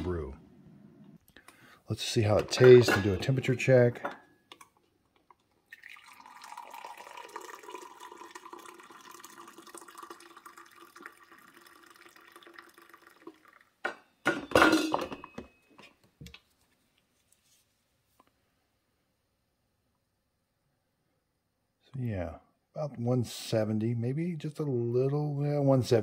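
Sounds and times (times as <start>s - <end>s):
knocks and clinks: 2.3s - 4.6s, 13.8s - 16.0s
coffee pouring into glass mug: 5.6s - 14.0s.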